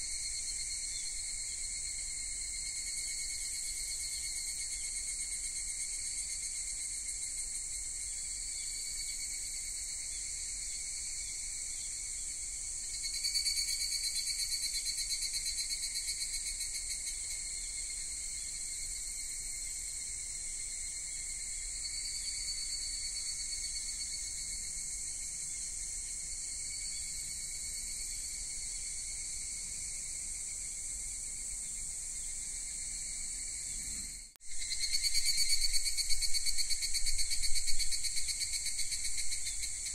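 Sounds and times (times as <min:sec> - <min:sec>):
insects chirring: 0:00.0 - 0:39.9.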